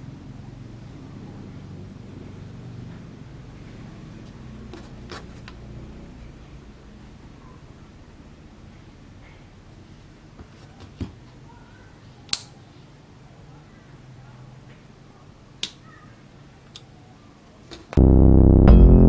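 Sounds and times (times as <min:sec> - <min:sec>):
faint room noise: 0:00.0 - 0:18.0
loud electronic music with beat: 0:18.0 - 0:19.0.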